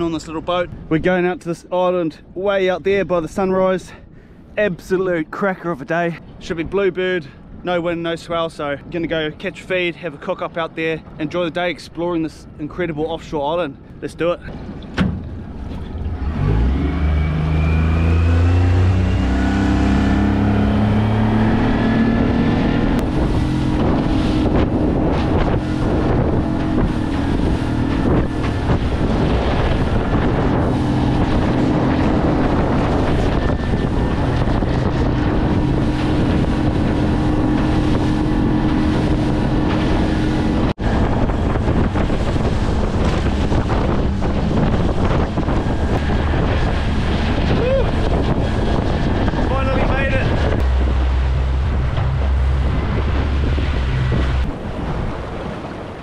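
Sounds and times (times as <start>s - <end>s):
wind on microphone: 0.0s - 56.0s
outboard motor revving: 14.6s - 56.0s.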